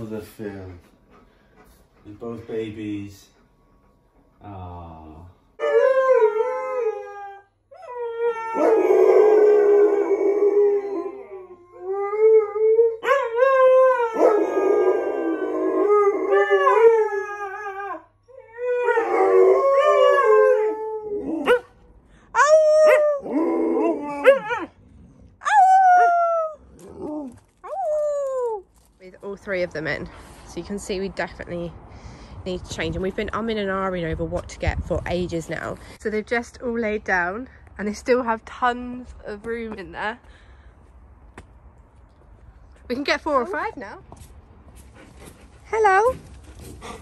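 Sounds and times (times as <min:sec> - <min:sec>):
dogs howling: 0:05.6 - 0:21.6, 0:22.4 - 0:24.7.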